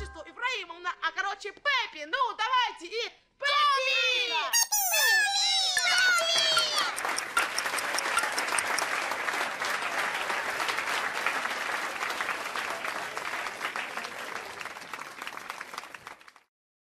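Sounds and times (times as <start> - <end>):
audience applauding: 5.8 - 16.5.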